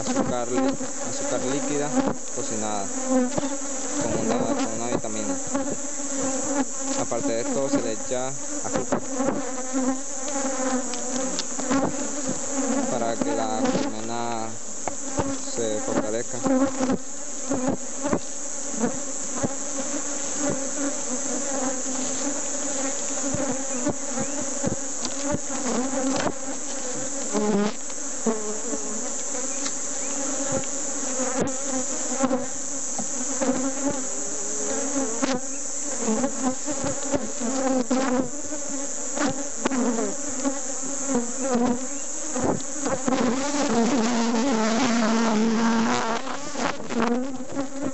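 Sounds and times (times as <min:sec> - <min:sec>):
honeybees buzzing: 0:00.0 - 0:47.9
hive tool clicks and knocks: 0:23.2 - 0:26.8.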